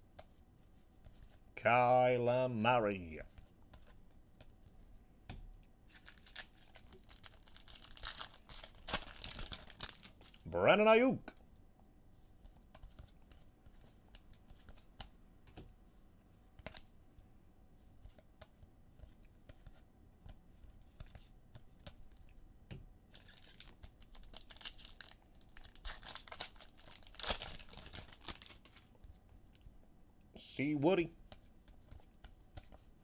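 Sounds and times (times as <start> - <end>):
plastic packaging crinkling: 5.9 - 10.5, 23.1 - 28.9.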